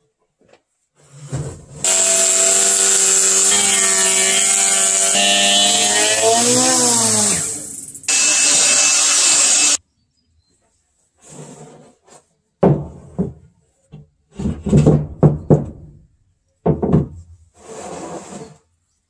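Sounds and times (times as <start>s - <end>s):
cordless blower running: 1.8s - 9.8s
wood scraping and sliding: 11.2s - 12.3s, 17.6s - 18.7s
wooden beams knocking and thudding: 12.6s - 16.0s, 16.6s - 17.4s.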